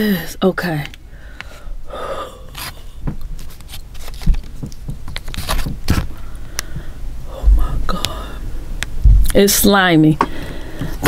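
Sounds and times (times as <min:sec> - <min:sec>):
plastic packet crinkling: 0:03.2 - 0:06.2
dull thumps: 0:04.2 - 0:06.1, 0:06.7 - 0:08.1, 0:09.0 - 0:09.5.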